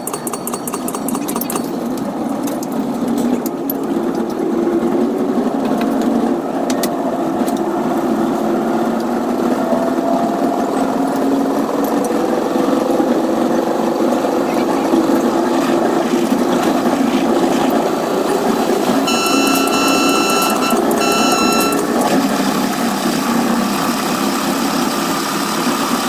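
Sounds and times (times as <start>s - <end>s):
train wheels rumbling on track: 0.0s - 26.0s
low train hum rising in pitch: 1.6s - 26.0s
rapid regular ticking: 19.1s - 21.9s.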